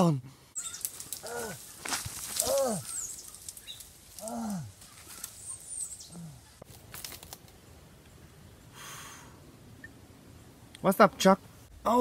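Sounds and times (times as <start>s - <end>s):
dry leaves crackling: 0.6s - 7.6s
man groaning: 1.2s - 1.6s, 2.4s - 2.9s, 4.2s - 4.8s.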